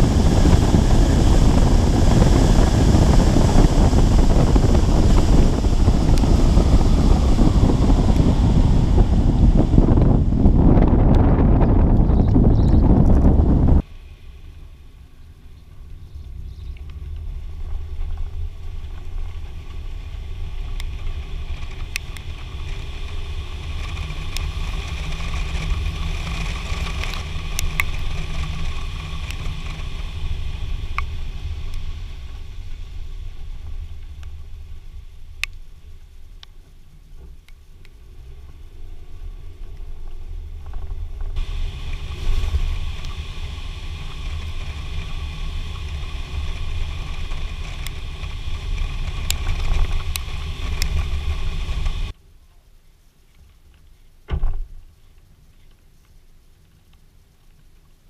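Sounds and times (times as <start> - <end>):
wind rushing over microphone: 0.0 - 14.0, 15.8 - 52.2
road rumble from moving vehicle: 0.0 - 52.2
scattered ticks: 23.7 - 30.0, 45.8 - 52.0.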